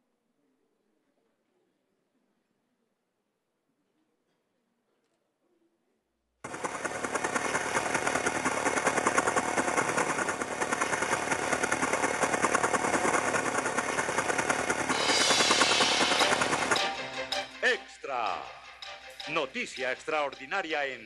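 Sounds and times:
machine-gun fire: 6.4 - 17.0.

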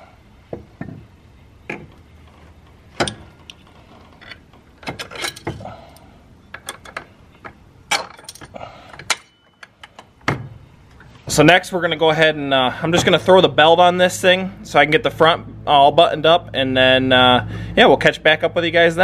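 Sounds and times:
metal clinks and knocks: 0.5 - 5.7, 6.4 - 11.1.

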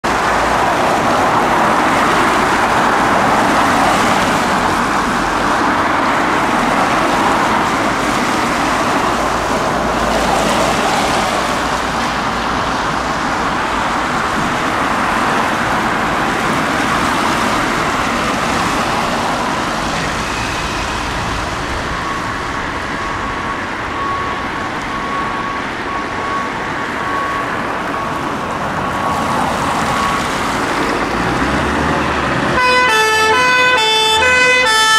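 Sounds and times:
traffic on a wet road: 0.0 - 34.9
faint high beeping tone: 19.8 - 28.3.

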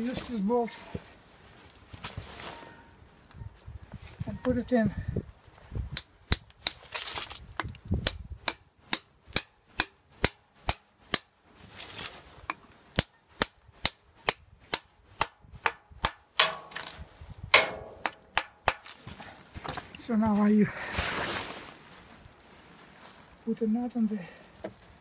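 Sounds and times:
hammer striking metal bolt: 13.0 - 16.9, 17.6 - 18.8.

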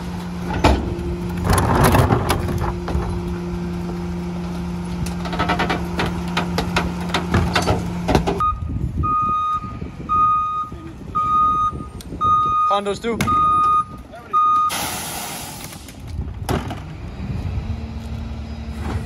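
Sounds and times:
cart clanking and rattling: 0.0 - 8.4
hydraulics humming: 0.0 - 19.0
truck backup alarm beeping: 8.4 - 15.6.

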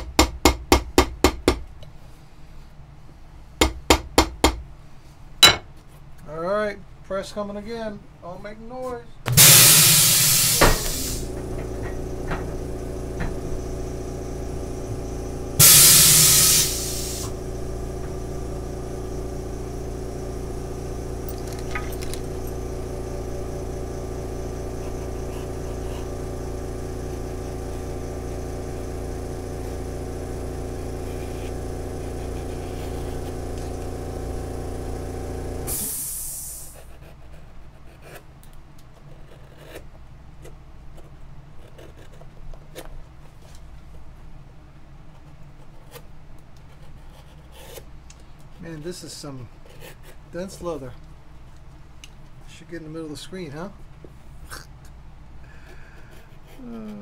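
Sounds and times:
air whoosh from press: 9.3 - 11.4, 15.6 - 17.3
machine hum: 9.3 - 37.4.

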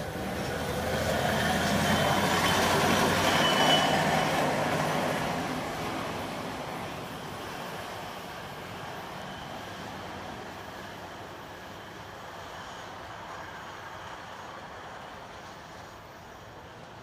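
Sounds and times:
truck rolling on rails: 0.0 - 8.1.

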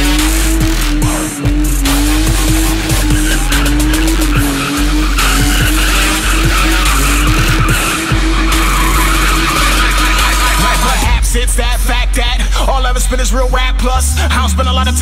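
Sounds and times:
car engine at high revs: 0.0 - 11.3
tyres squealing on tarmac: 1.8 - 11.1.

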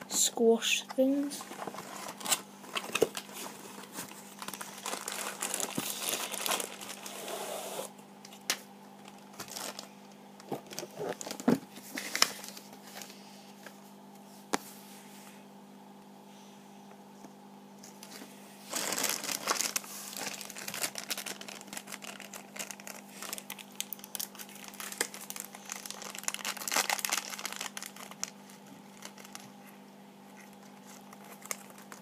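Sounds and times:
plastic bag crinkling: 1.1 - 7.2, 9.0 - 12.7, 17.9 - 29.6, 30.4 - 32.0.

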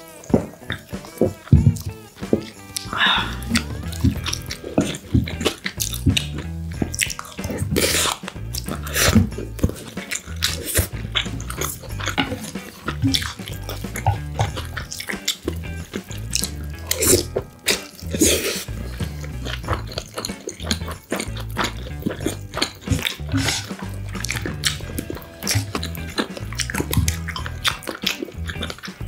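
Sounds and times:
background music with bass line: 0.0 - 29.0
wet chewing and lip smacks: 0.0 - 29.0.

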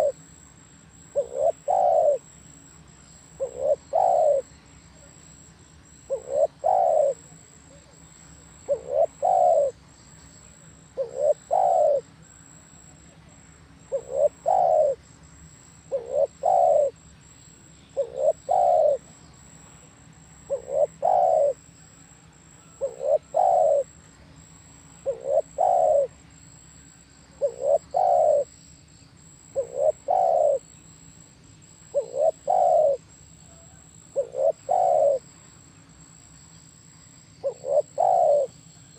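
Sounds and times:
dove cooing: 0.0 - 0.2, 1.0 - 2.3, 3.2 - 9.8, 10.9 - 12.1, 13.8 - 15.0, 15.9 - 17.0, 17.9 - 19.2, 20.4 - 26.2, 27.3 - 28.5, 29.2 - 30.7, 31.9 - 35.3, 37.4 - 38.9.

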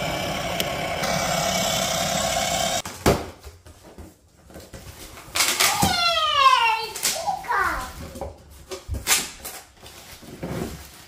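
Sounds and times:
toy electric motor whining: 0.0 - 2.8.

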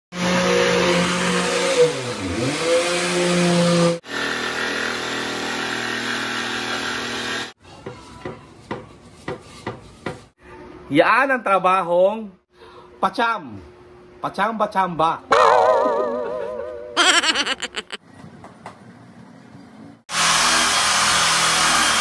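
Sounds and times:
jigsaw cutting wood: 4.1 - 7.5.

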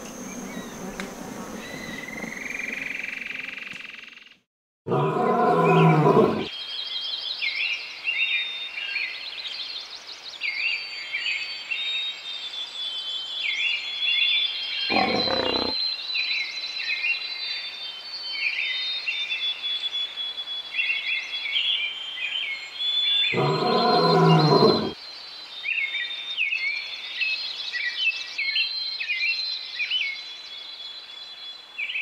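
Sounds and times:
lion growls: 4.9 - 6.5, 14.9 - 15.8, 23.4 - 25.0
high repeated chirping calls: 14.9 - 15.7.

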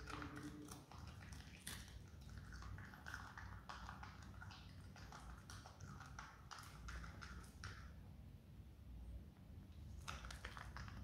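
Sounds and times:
marmot crunching cabbage: 0.0 - 7.8.

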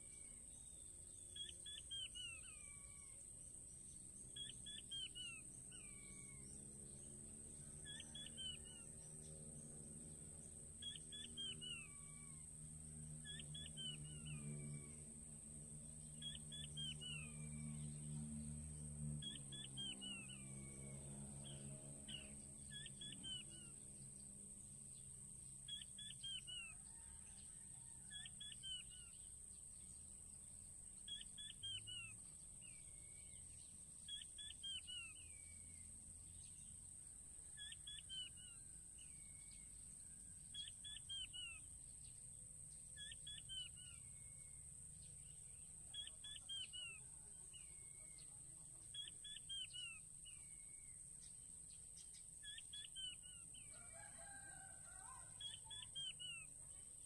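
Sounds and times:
quail calling: 4.4 - 6.4, 7.8 - 8.9, 10.8 - 12.4, 13.2 - 15.0, 16.2 - 17.4, 19.2 - 20.7, 21.5 - 23.8, 28.1 - 29.2, 40.6 - 41.6, 43.0 - 44.1, 45.9 - 47.1, 48.9 - 50.0, 52.4 - 56.5.

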